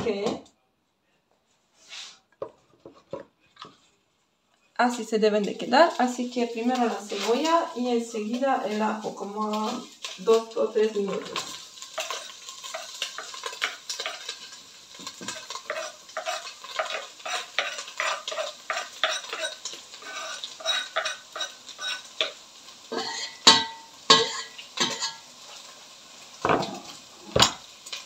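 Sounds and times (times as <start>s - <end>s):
light sizzle of frying: 1.7s - 28.0s
wooden spatula scraping pot: 5.5s - 7.7s, 11.1s - 25.2s.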